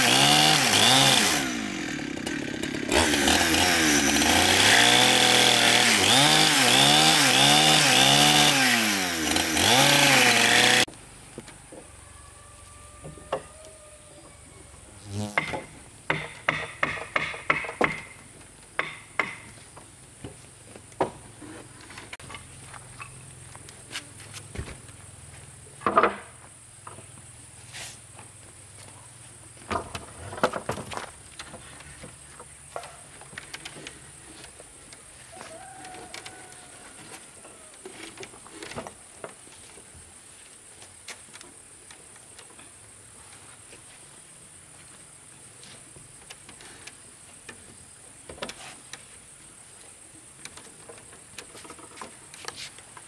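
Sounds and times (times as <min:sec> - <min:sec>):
insects buzzing: 0:11.8 - 0:53.0.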